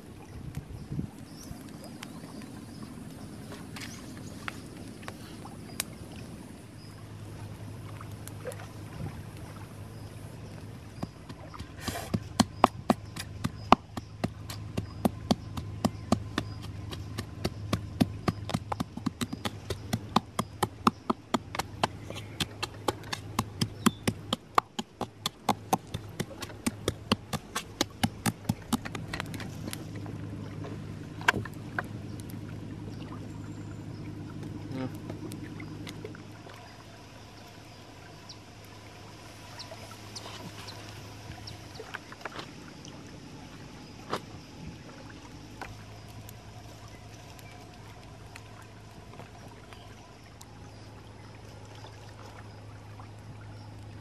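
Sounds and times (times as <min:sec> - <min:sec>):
wooden pestle pounding in mortar: 0:11.6 - 0:29.1.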